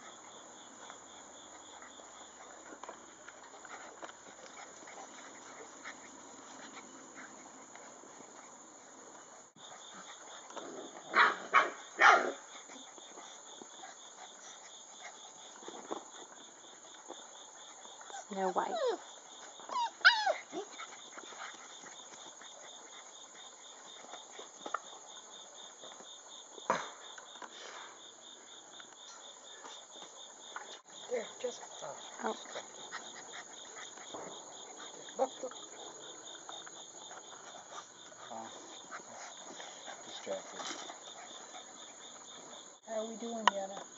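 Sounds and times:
insects chirping: 0:00.0 - 0:43.9
dog barking: 0:11.1 - 0:12.4.

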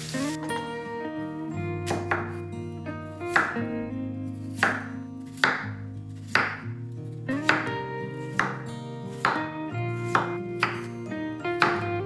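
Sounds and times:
light background music: 0:00.0 - 0:12.0
knife cutting on wooden board: 0:04.5 - 0:06.7, 0:07.4 - 0:07.7, 0:09.2 - 0:10.9.

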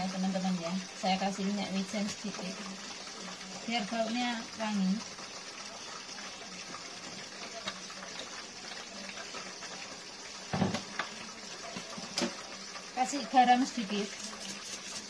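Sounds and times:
dull knock of bottle on countertop: 0:10.5 - 0:10.9.

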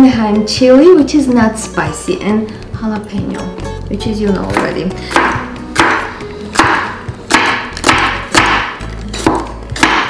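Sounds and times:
knife slicing pepper on cutting board: 0:04.5 - 0:10.0.

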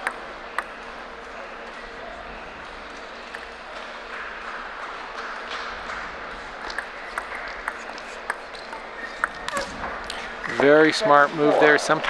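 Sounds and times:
crowd murmur indoors: 0:00.0 - 0:12.0
table tennis ball clicking: 0:06.6 - 0:09.7.

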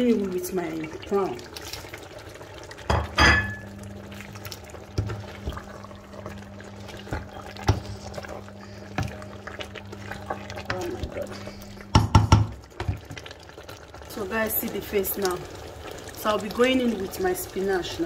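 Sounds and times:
porridge bubbling: 0:00.0 - 0:18.0
steady low hum: 0:02.7 - 0:13.1
spoon knocking against pot: 0:11.9 - 0:13.0.

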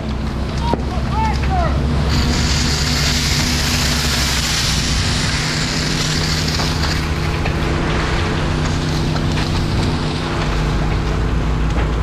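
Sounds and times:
fire engine pump humming: 0:00.0 - 0:12.0
water spray hissing from hose: 0:01.8 - 0:11.0.

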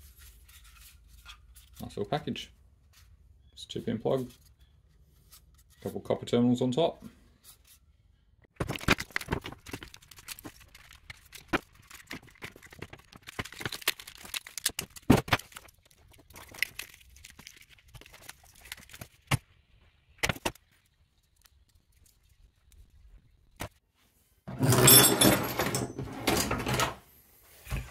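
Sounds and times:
plastic parts clicking and rattling: 0:08.6 - 0:19.2.

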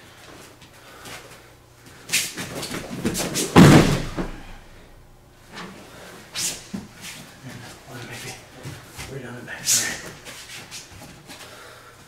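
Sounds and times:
body thudding on mat: 0:02.3 - 0:04.6.

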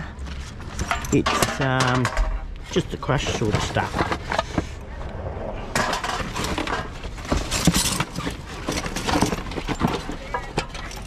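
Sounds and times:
rubbish rustling: 0:00.1 - 0:04.8, 0:05.7 - 0:11.0.

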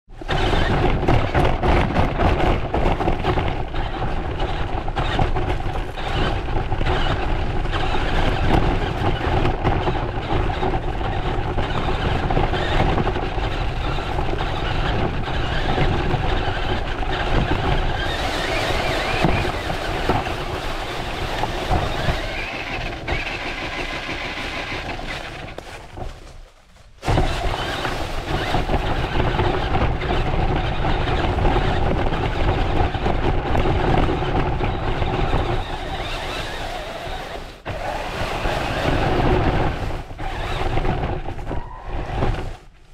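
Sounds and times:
rc truck motor whining: 0:03.0 - 0:25.6, 0:27.1 - 0:42.5
tyres on dry leaves: 0:17.8 - 0:30.2, 0:35.9 - 0:42.9.

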